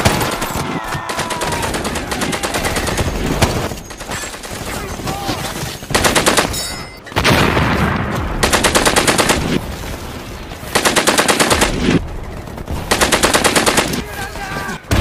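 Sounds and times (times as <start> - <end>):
battle noise: 0.0 - 3.7
machine-gun bursts: 1.1 - 6.6, 8.4 - 9.6, 10.7 - 14.4.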